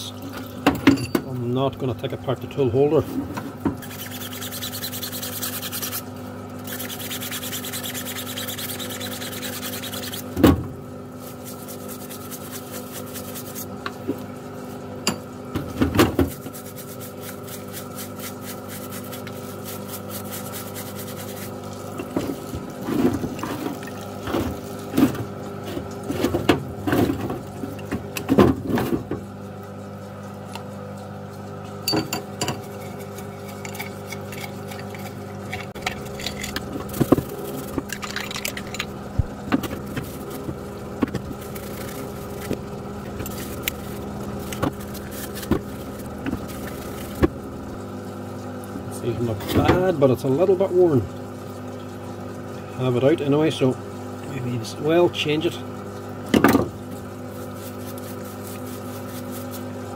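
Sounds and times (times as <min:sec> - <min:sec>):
pump humming: 0:00.0 - 0:59.9
solvent running over parts: 0:00.0 - 0:59.9
scrubbing parts: 0:03.0 - 0:10.4, 0:32.4 - 0:47.4.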